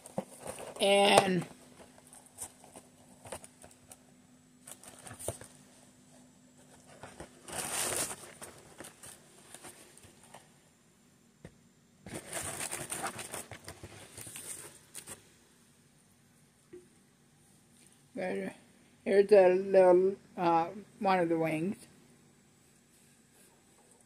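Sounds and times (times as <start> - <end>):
food packaging crinkling: 0.0 - 4.0, 4.6 - 5.7, 6.6 - 10.4, 12.1 - 15.2.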